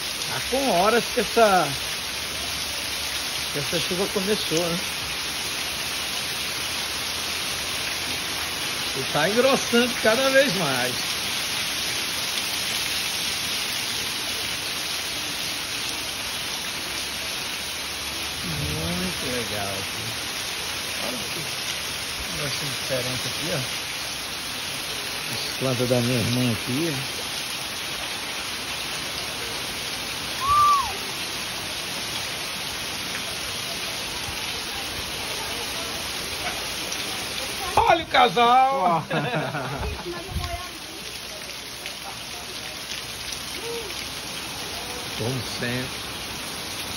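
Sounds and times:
heavy rain: 0.0 - 46.9
water pouring off roof: 0.0 - 46.9.

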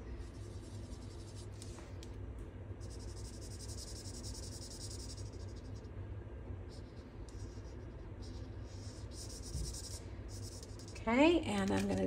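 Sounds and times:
steady low hum: 0.0 - 12.0
marker scratching on cardstock: 2.8 - 5.7, 6.7 - 11.0.

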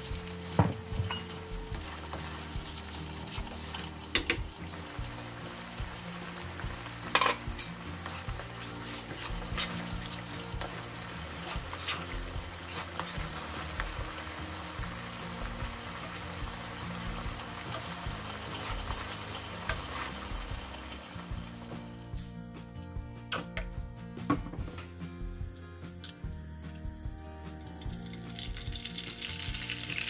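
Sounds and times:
sauce bubbling and sizzling in pan: 0.0 - 22.3, 27.6 - 30.0
spoon stirring sauce: 7.5 - 20.7.

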